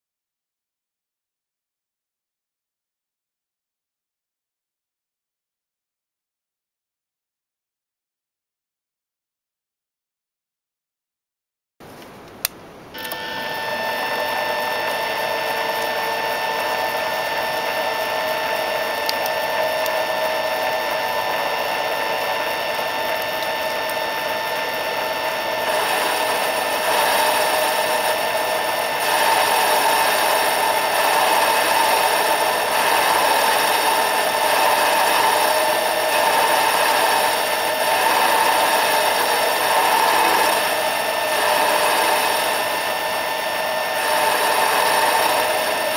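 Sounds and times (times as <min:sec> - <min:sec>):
lathe motor whine: 0:13.0 - 0:45.9
lathe tool cutting hiss: 0:13.0 - 0:45.9.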